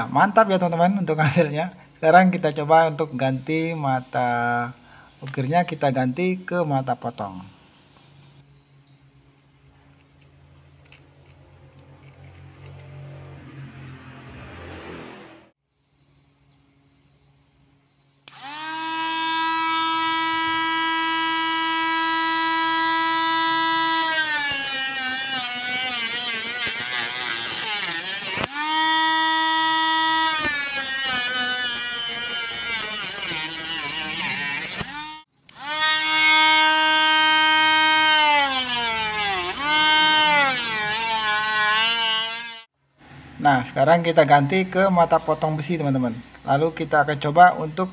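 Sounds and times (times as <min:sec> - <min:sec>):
grinding plastic hiss: 0:18.3 - 0:28.9, 0:29.8 - 0:36.4
mini grinder motor whine: 0:18.3 - 0:42.7.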